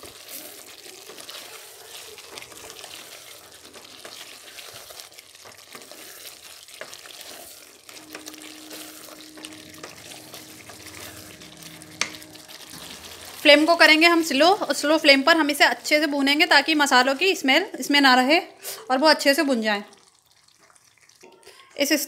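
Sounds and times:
wooden spatula scraping a pan: 0:00.0 - 0:17.1
chicken sizzling in a pan: 0:00.0 - 0:17.6.

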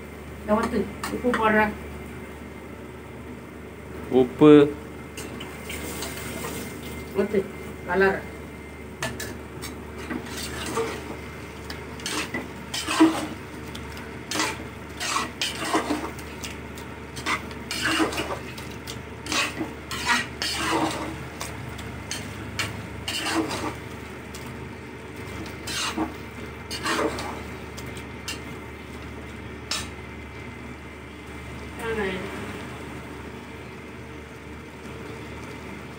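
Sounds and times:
metal spoon scraping a pot: 0:09.0 - 0:11.2, 0:12.0 - 0:13.4, 0:14.3 - 0:16.2, 0:17.1 - 0:18.6, 0:19.2 - 0:21.5, 0:22.1 - 0:23.8, 0:25.4 - 0:27.5, 0:28.2 - 0:28.5, 0:29.7 - 0:29.9.

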